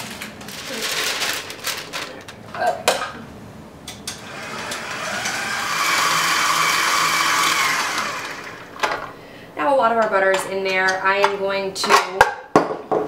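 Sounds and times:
stand mixer whisking: 4.3s - 8.8s.

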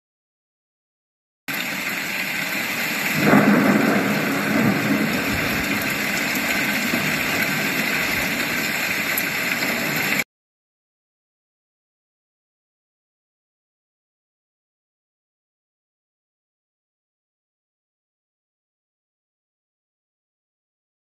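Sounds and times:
rain hissing: 1.5s - 10.2s
thunder clap rumbling: 3.1s - 10.2s.

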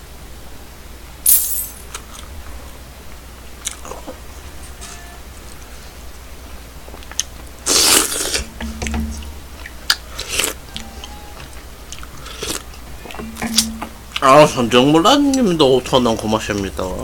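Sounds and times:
chewing: 6.9s - 8.5s, 9.6s - 13.4s
closed-mouth hums: 7.2s - 14.3s
man slurping soup: 7.7s - 8.4s.

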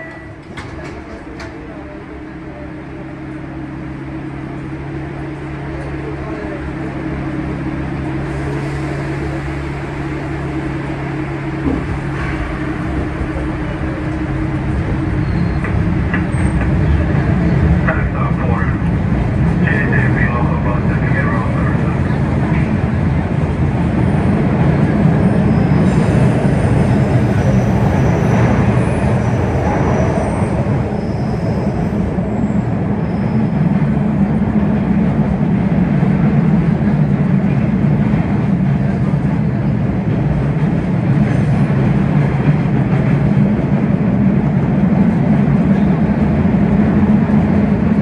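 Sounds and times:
subway train rumbling in tunnel: 0.0s - 48.0s
high wheel squeals: 15.1s - 16.6s, 25.2s - 33.6s.

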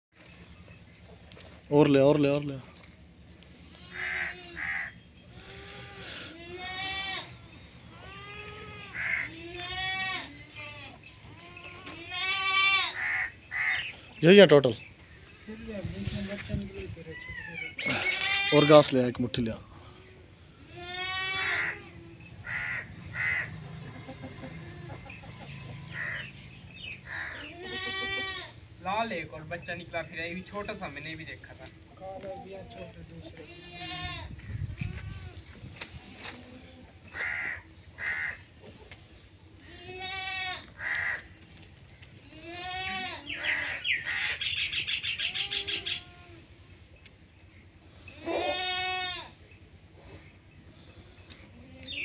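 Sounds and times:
goats bleating: 3.6s - 13.9s, 17.5s - 18.9s, 20.5s - 28.6s, 32.7s - 35.6s, 39.6s - 41.2s, 42.2s - 43.8s, 45.2s - 46.7s, 48.1s - 49.4s
harsh bird caw: 3.8s - 5.0s, 8.9s - 9.4s, 12.9s - 14.0s, 21.3s - 23.7s, 25.9s - 26.4s, 27.0s - 27.6s, 37.2s - 38.4s, 40.8s - 41.3s, 43.3s - 46.0s.

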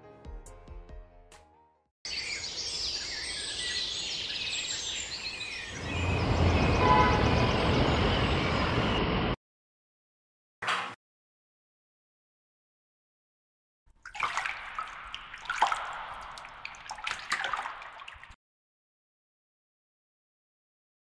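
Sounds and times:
birds chirping: 2.1s - 9.1s
city street traffic rumble: 5.7s - 9.4s.

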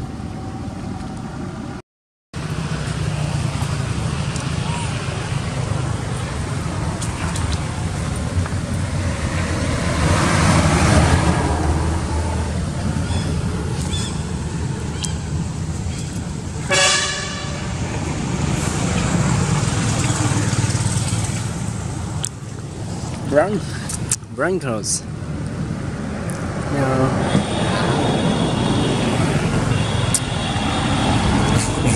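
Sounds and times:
traffic rumble: 0.0s - 1.8s, 2.4s - 31.9s
vehicle horn toot: 16.7s - 17.8s, 27.2s - 31.9s.

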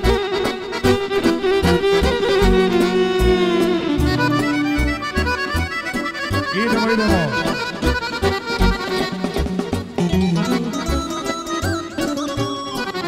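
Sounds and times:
accordion-like lead: 0.0s - 13.0s
electric guitar: 0.0s - 13.0s
electric violin: 0.0s - 13.0s
steady bass beat: 2.4s - 7.2s.

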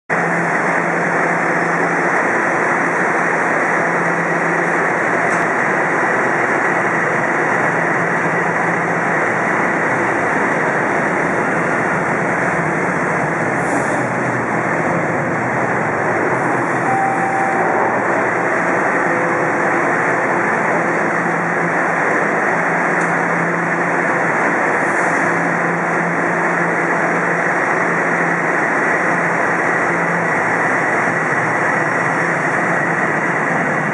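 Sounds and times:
subway trains in station: 0.1s - 33.9s
brief single tone: 16.8s - 18.2s, 19.0s - 19.7s.

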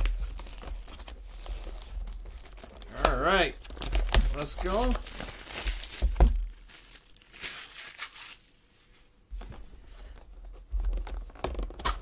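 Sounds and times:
plastic shrink wrap crinkling: 0.0s - 8.9s.

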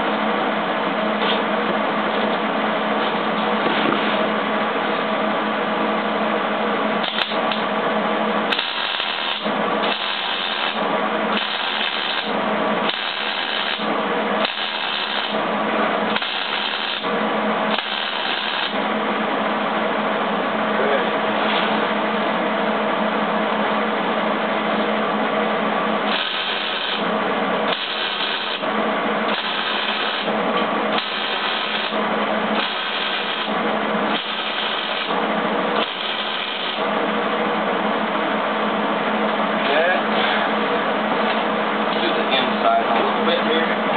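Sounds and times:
steady hum: 0.0s - 43.9s
welding arc crackling: 7.0s - 7.7s, 8.4s - 18.8s, 26.0s - 37.2s.

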